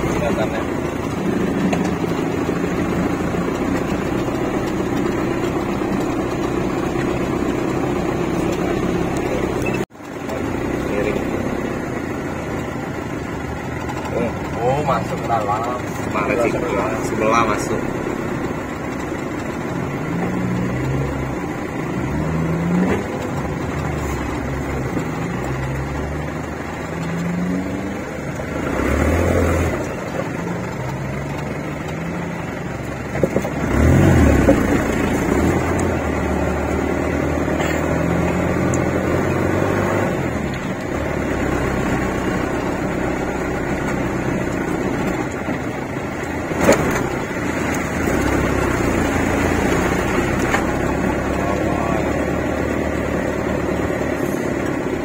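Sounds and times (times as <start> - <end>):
engine revving under load: 0.0 - 55.0
vehicle thumping over bumps: 32.9 - 39.6.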